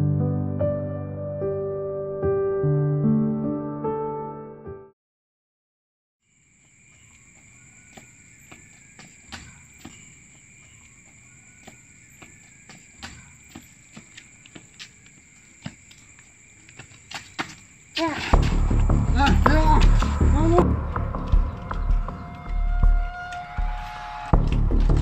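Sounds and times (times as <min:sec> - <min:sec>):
insects chirring: 0:06.2 - 0:25.0
footsteps on a footbridge: 0:06.6 - 0:20.4, 0:21.2 - 0:25.0.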